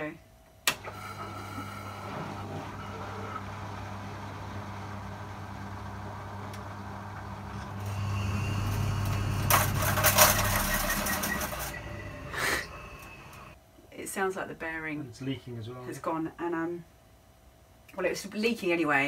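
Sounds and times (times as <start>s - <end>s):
washing machine humming: 0.7s - 13.6s
loud clattering rattle: 8.0s - 12.0s.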